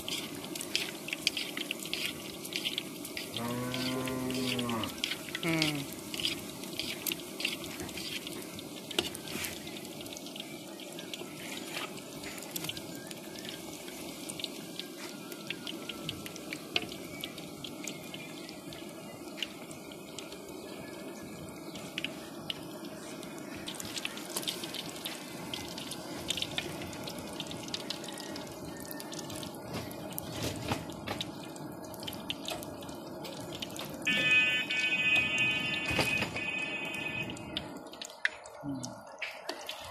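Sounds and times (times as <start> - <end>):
oil sizzling and popping: 0.0 - 38.6, 39.2 - 39.9
loud pitched tone: 34.1 - 37.5.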